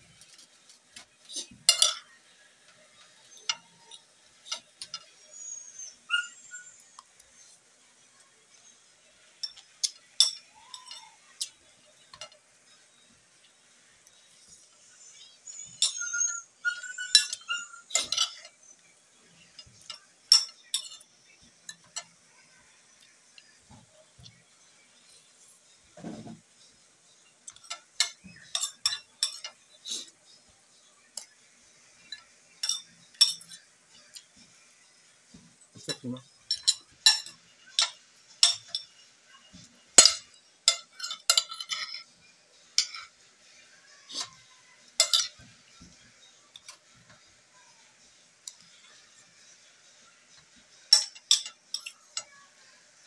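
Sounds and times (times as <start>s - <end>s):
cutlery clinking on plate: 1.0s - 5.3s, 9.4s - 12.4s, 15.1s - 18.6s, 19.6s - 22.2s, 27.4s - 29.7s, 31.1s - 31.4s, 32.0s - 34.3s, 35.8s - 42.1s, 42.8s - 43.1s, 44.2s - 46.9s, 50.3s - 52.4s.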